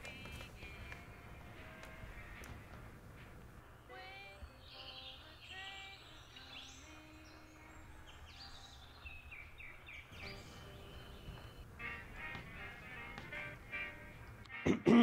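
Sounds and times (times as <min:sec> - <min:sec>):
birds chirping and trilling: 0:00.5 - 0:14.3.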